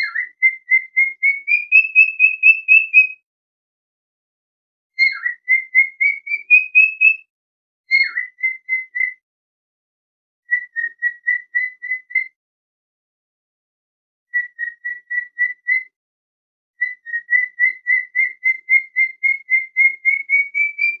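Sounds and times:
cockatiel chirping: 0:00.0 - 0:03.2, 0:05.0 - 0:07.2, 0:07.9 - 0:09.2, 0:10.5 - 0:12.3, 0:14.4 - 0:15.9, 0:16.8 - 0:21.0.

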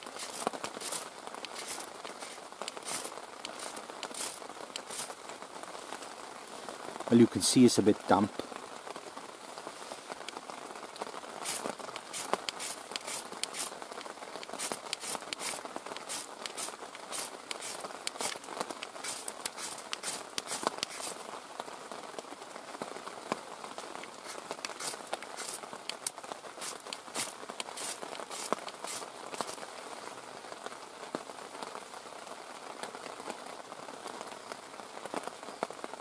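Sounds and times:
knife scraping ferro rod: 0:00.0 - 0:05.2, 0:11.4 - 0:13.8, 0:14.4 - 0:21.2, 0:24.2 - 0:29.6.

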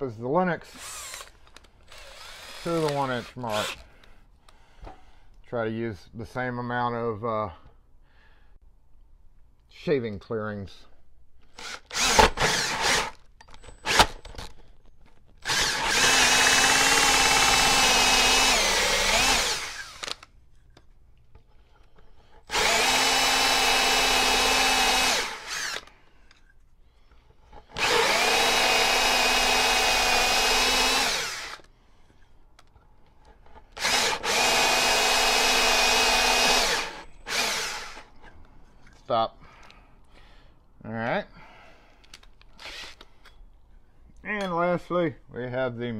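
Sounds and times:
drill with hole saw cutting wood: 0:00.7 - 0:01.3, 0:01.9 - 0:03.8, 0:11.6 - 0:13.2, 0:13.8 - 0:14.2, 0:15.4 - 0:20.2, 0:22.5 - 0:26.0, 0:27.6 - 0:31.7, 0:33.8 - 0:38.1, 0:42.6 - 0:43.0.

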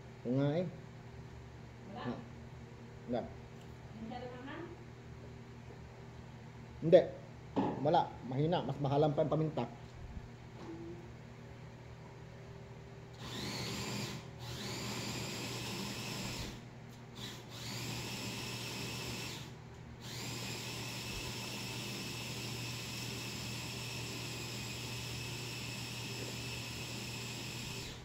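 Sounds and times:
power tool whine: 0:13.2 - 0:16.6, 0:17.2 - 0:28.0.

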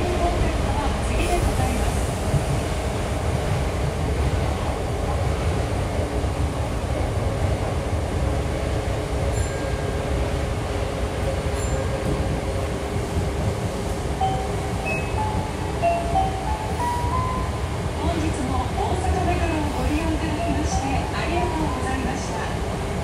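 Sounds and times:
electric train hum: 0:00.0 - 0:23.0.

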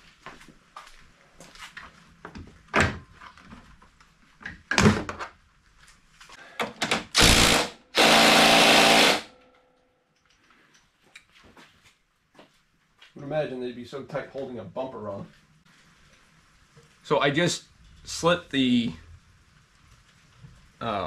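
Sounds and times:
cordless power driver running: 0:07.2 - 0:09.3.

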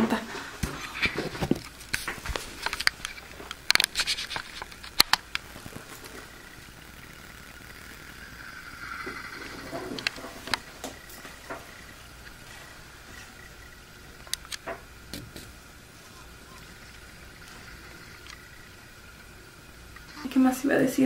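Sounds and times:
faint steady hiss: 0:00.0 - 0:21.0
camera handling clicks and rustles: 0:01.0 - 0:05.4.

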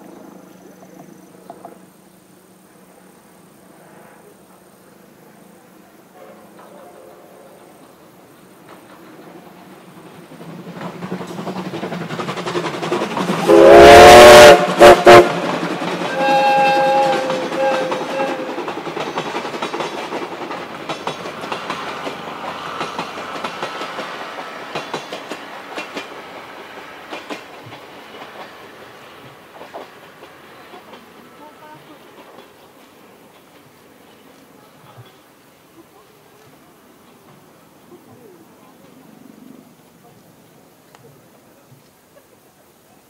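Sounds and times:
train rumble: 0:00.0 - 0:43.0
train wheels clattering: 0:06.2 - 0:35.4
steam train whistle: 0:13.4 - 0:18.8.

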